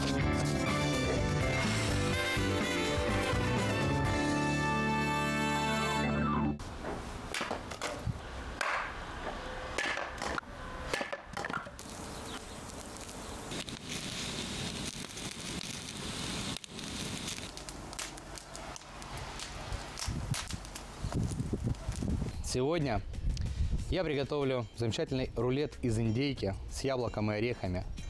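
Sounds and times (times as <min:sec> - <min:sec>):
axe chopping wood: 0:07.3 - 0:08.0, 0:08.6 - 0:09.0, 0:09.8 - 0:11.7
campfire crackling and hissing: 0:10.2 - 0:22.5.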